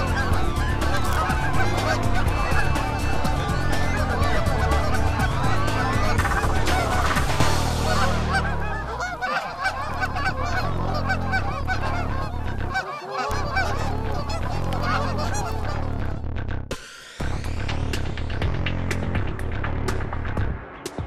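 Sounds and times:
geese honking: 0:00.0 - 0:16.2.

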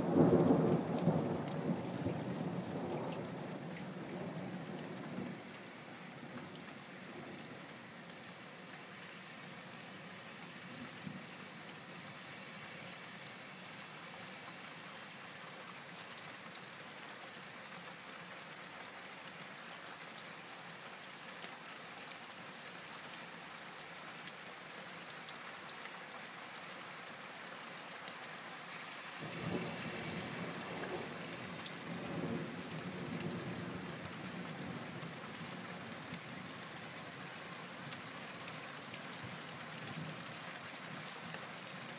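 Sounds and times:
low rumble of thunder: 0:00.0 - 0:05.5, 0:29.2 - 0:35.6
steady rain: 0:00.0 - 0:41.9.

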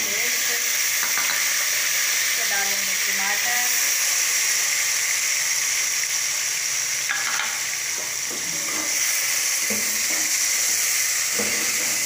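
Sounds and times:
food sizzling in hot oil: 0:00.0 - 0:12.0
spoon clinking and scraping pot: 0:07.1 - 0:07.6.

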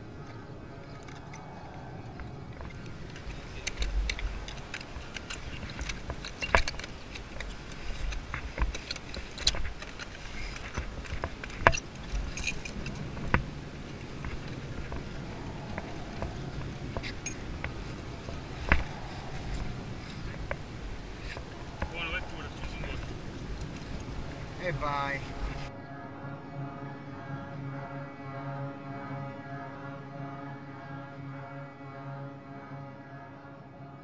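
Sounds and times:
metallic clicks and clinks: 0:02.5 - 0:13.4, 0:17.0 - 0:20.6
low rumble: 0:10.8 - 0:27.6.

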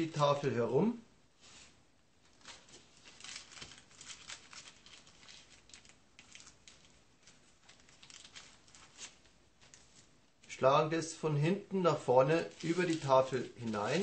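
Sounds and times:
tissue paper rustling: 0:01.4 - 0:10.2, 0:12.0 - 0:14.0.

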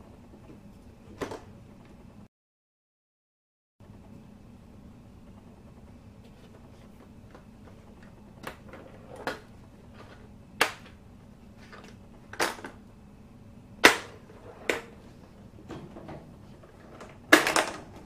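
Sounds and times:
plastic pinball flippers clacking: 0:16.8 - 0:18.0.

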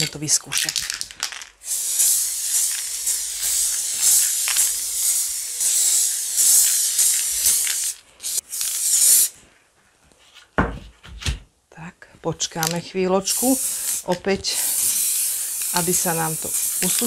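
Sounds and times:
spray paint can hissing: 0:01.6 - 0:09.4, 0:12.6 - 0:17.0.

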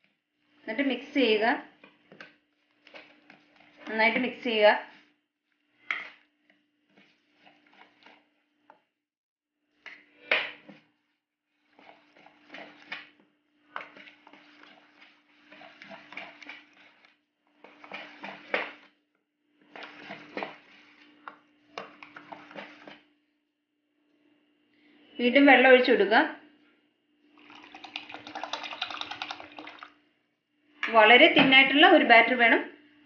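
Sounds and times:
spoon scraping steel bowl: 0:13.8 - 0:18.6.

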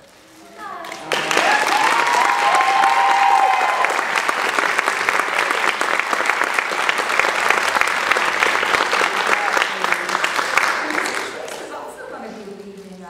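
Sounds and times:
people applauding: 0:00.6 - 0:12.0
high cheers: 0:00.8 - 0:08.4.

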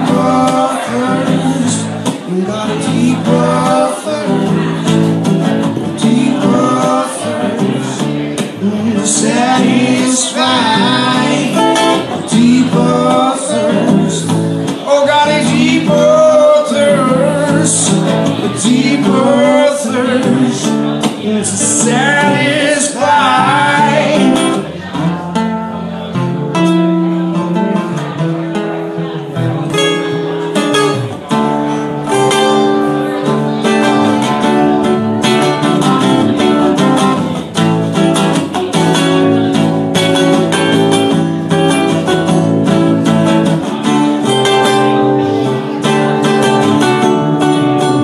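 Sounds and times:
man singing: 0:00.0 - 0:25.4
acoustic guitar: 0:00.0 - 0:48.0
electric guitar: 0:00.0 - 0:48.0.

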